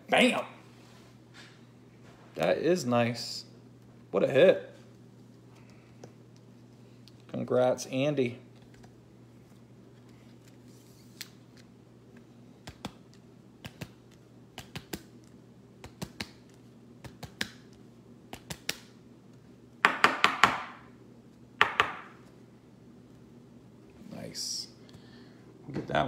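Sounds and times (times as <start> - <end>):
faint steady hum: 0.0 - 26.0.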